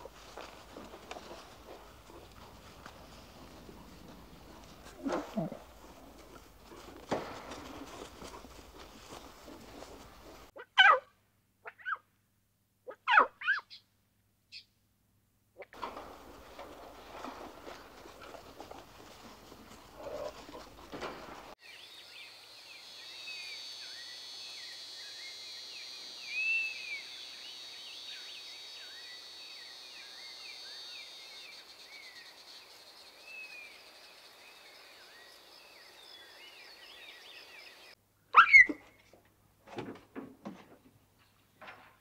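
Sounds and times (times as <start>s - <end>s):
rustling ground sound: 0.0s - 10.5s, 15.8s - 21.6s
high insect drone: 22.2s - 36.0s.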